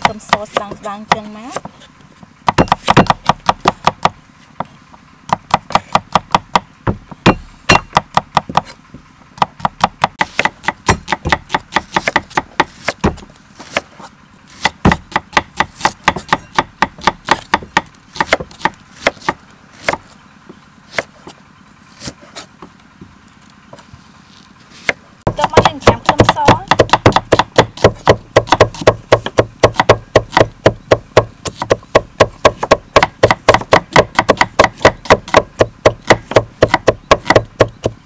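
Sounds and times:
knife chopping on wooden block: 0:02.4 - 0:04.7, 0:05.3 - 0:08.8, 0:09.4 - 0:13.9, 0:14.6 - 0:20.0, 0:24.8 - 0:38.0.

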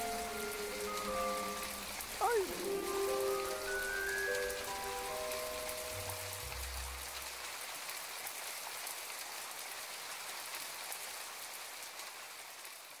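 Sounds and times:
soft music: 0:00.0 - 0:07.2
steady rain falling: 0:00.0 - 0:13.0.

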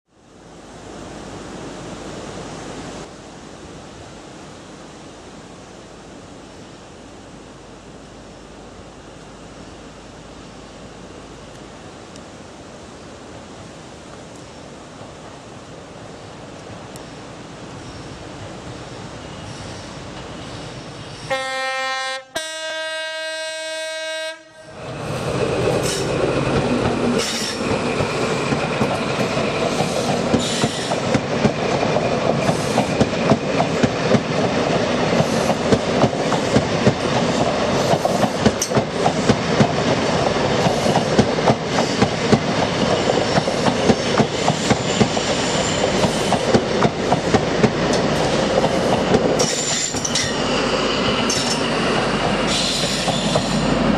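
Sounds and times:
train passing rush: 0:00.3 - 0:53.9
two-tone train horn: 0:21.3 - 0:24.8.

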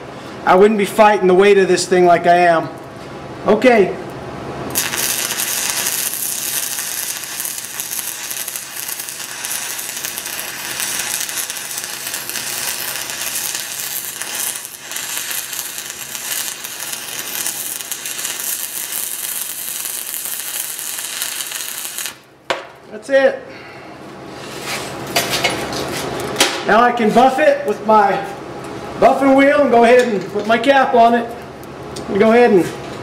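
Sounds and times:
welding arc crackling: 0:04.7 - 0:22.3.

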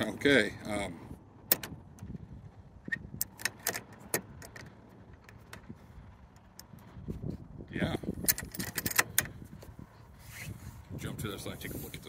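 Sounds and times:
padlock clinking against metal: 0:02.9 - 0:04.7, 0:08.2 - 0:09.3.

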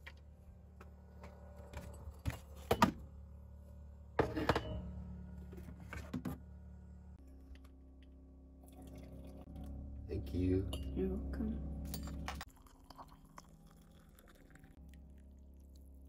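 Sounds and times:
generator humming: 0:00.0 - 0:12.5
ceramic mugs and dishes clinking: 0:10.6 - 0:11.0.

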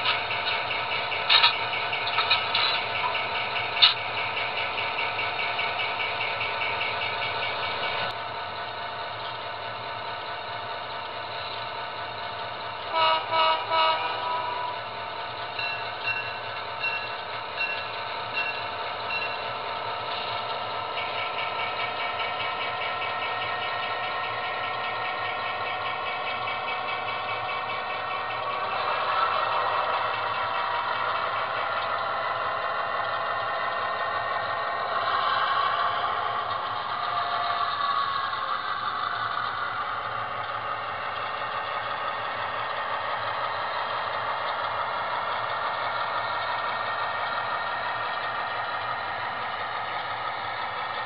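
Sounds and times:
model train diesel engine sound: 0:00.0 - 0:51.0
train horn toots: 0:12.9 - 0:14.9.

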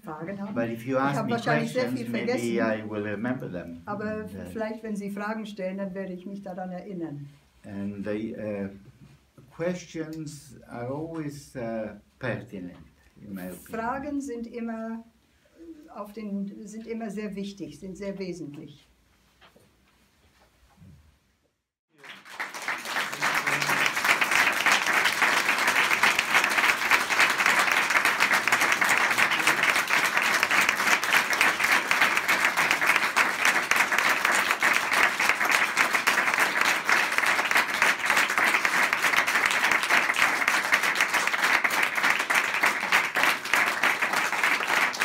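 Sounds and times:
audience applauding: 0:21.9 - 0:45.0.

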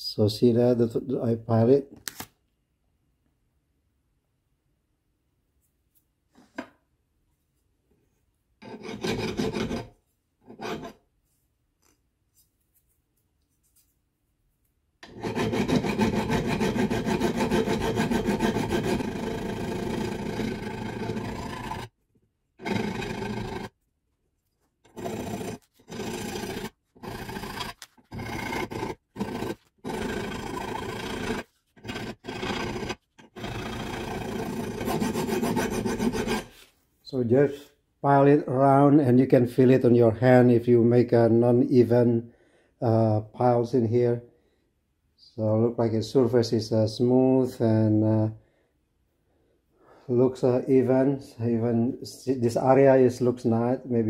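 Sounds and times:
hand file rasping on steel: 0:08.6 - 0:11.0, 0:15.0 - 0:22.0, 0:22.6 - 0:23.8, 0:24.8 - 0:36.6.

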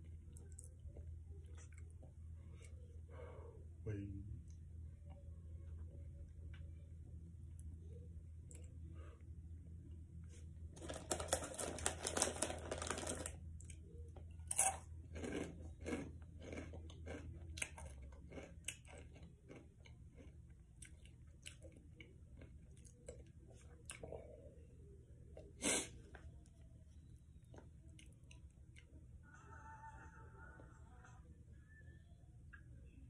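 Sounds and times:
snack chips being chewed: 0:10.8 - 0:24.3.

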